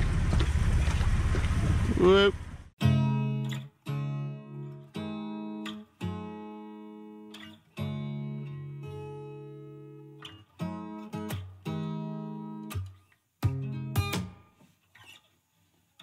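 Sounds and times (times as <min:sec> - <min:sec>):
strummed guitar chords: 0:02.8 - 0:14.5.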